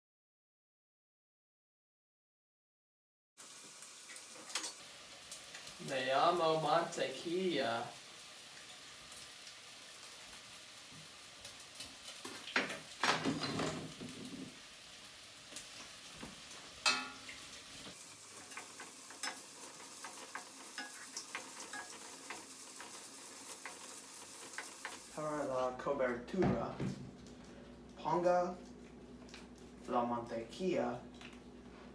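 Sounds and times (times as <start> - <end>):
spoon stirring pasta in a pot: 18.2 - 25.1.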